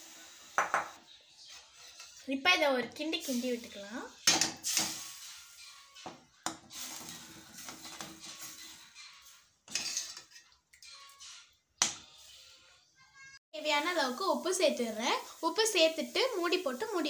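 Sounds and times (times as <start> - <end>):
ladle scraping metal pan: 1.4 - 2.4, 3.2 - 12.8.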